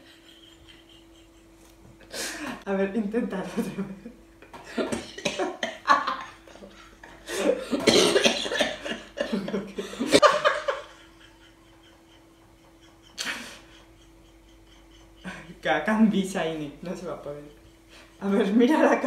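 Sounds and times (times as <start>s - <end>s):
women laughing: 0.0s - 2.6s, 3.3s - 15.9s.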